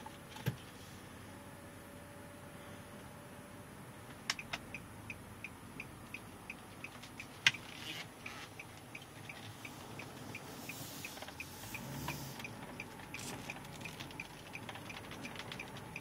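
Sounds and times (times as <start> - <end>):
low car cabin rumble: 3.6 - 16.0
turn signal ticking: 4.1 - 16.0.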